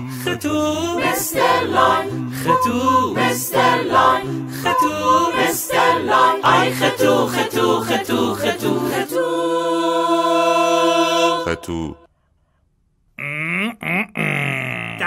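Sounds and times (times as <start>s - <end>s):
person singing: 0.0s - 12.0s.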